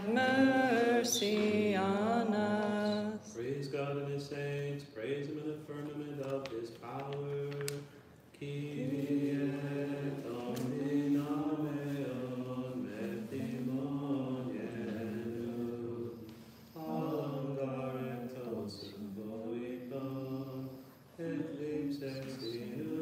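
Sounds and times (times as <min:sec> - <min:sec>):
voices chanting a hymn: 0:00.0 - 0:23.0.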